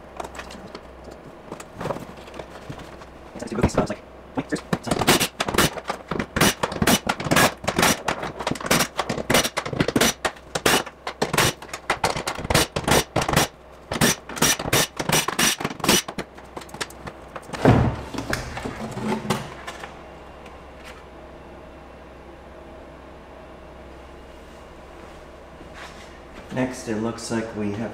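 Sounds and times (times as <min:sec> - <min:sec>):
loud thump and knocks: 0:17.5 - 0:18.6.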